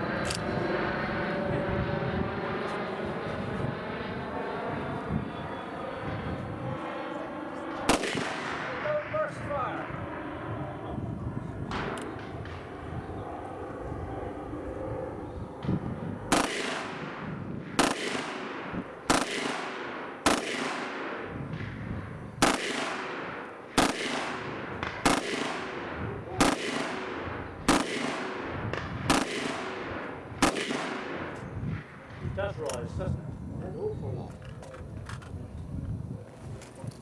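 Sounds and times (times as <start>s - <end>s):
rifle shots echoing: 7.7s - 9.8s, 16.3s - 32.2s.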